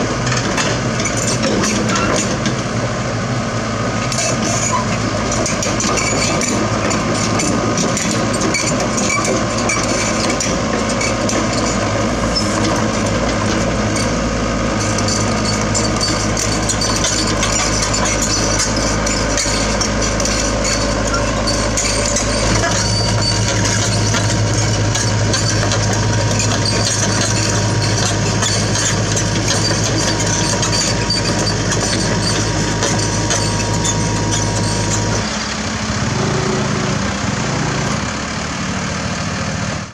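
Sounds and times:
diesel engine running: 0.0s - 39.9s
steel tracks clattering: 14.9s - 35.3s.

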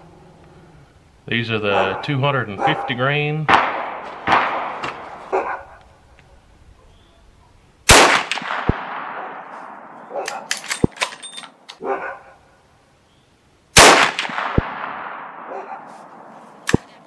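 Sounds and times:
rifle shot with echo: 3.5s - 5.2s, 7.9s - 10.9s, 13.8s - 16.9s
rifle lever action clacking: 10.2s - 11.8s
metallic ring of ejected case: 10.3s - 11.7s.

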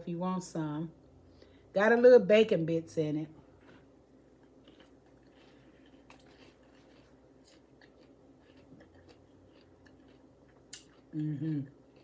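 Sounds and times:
low room hum: 0.0s - 12.0s
faint crunchy chewing: 3.4s - 12.0s.

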